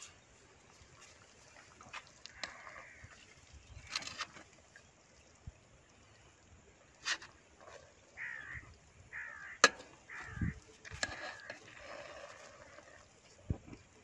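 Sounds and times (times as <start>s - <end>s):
crow cawing: 2.3s - 3.1s, 8.2s - 10.6s.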